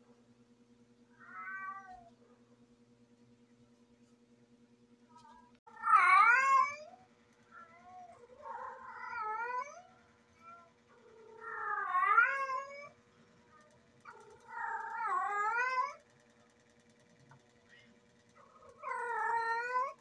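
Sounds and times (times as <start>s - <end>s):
cat yowling: 1.1s - 2.2s, 5.7s - 16.0s, 18.4s - 20.0s.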